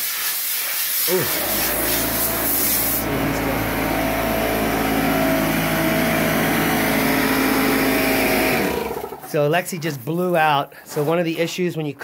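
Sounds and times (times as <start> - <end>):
compressed air hissing: 0.0 - 3.1
air compressor running: 1.1 - 9.3.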